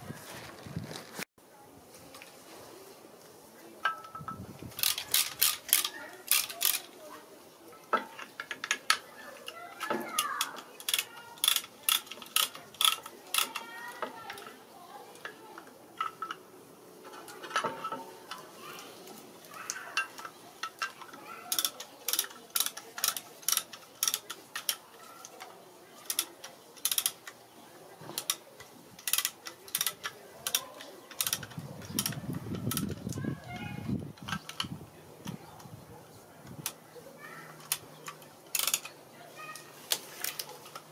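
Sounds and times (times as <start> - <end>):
metallic clicks of hand tools: 3.8 - 6.9, 8.0 - 13.7, 19.7 - 27.4, 28.1 - 33.1, 37.6 - 39.0.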